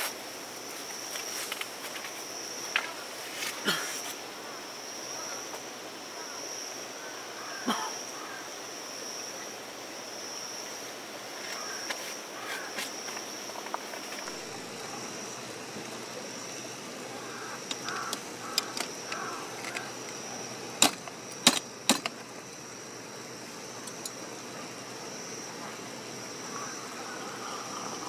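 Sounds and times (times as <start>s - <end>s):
sharp metal clicks: 17.6s - 20.2s, 20.8s - 22.6s.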